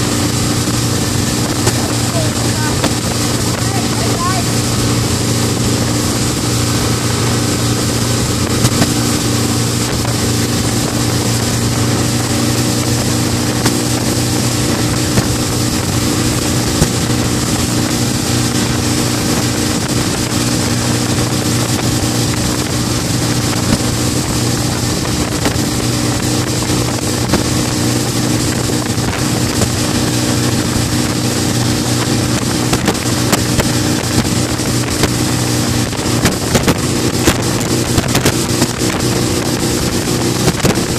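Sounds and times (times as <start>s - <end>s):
outboard motor drone: 0.0s - 40.9s
wind noise on microphone: 0.0s - 40.9s.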